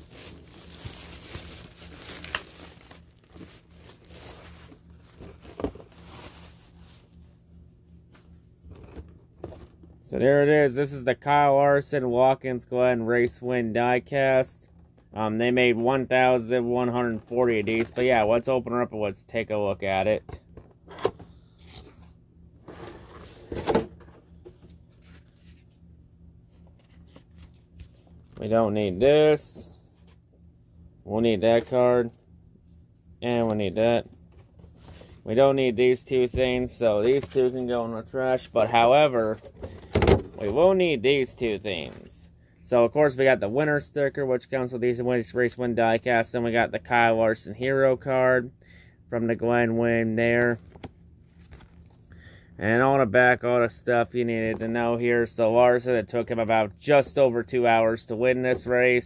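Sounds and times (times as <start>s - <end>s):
wrapping crinkling and tearing: 0.0s - 7.2s
cardboard box rustling and scraping: 22.6s - 25.7s.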